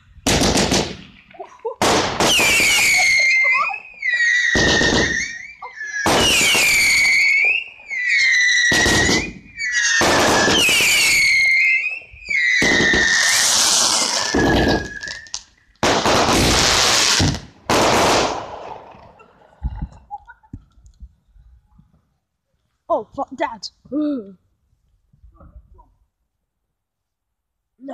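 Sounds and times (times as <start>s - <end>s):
firework hiss and crackle: 0.0s - 19.0s
shrill firework whistles: 2.2s - 17.4s
firework bang: 4.5s - 7.1s, 8.7s - 11.2s, 12.6s - 19.2s.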